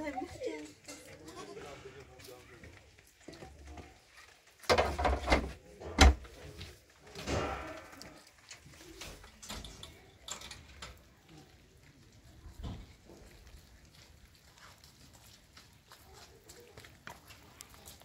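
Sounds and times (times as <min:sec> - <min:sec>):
sheet-metal door rattling and creaking: 0:04.6 - 0:06.4, 0:07.2 - 0:08.0.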